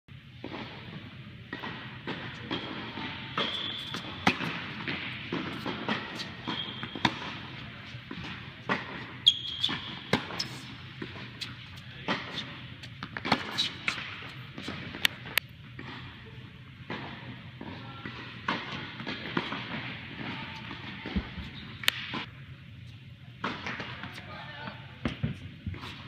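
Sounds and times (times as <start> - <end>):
tennis balls bouncing on court: 0.4 - 16.2, 16.8 - 22.3
tennis balls struck by rackets: 0.4 - 16.2, 16.8 - 22.3
shoe squeaks on court: 3.2 - 4.4, 5.5 - 7.3, 9.1 - 10.8, 13.4 - 14.0.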